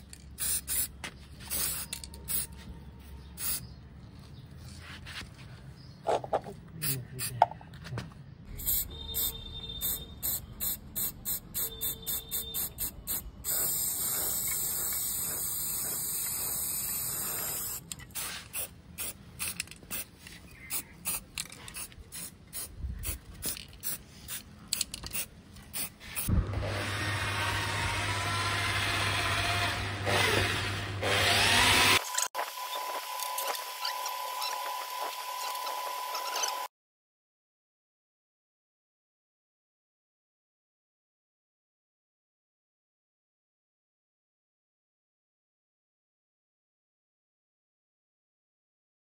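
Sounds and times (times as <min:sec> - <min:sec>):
spray can ball rattling: 0:00.0 - 0:02.5, 0:08.6 - 0:26.3
spray paint hissing: 0:00.3 - 0:02.6, 0:03.4 - 0:03.7, 0:08.5 - 0:26.3.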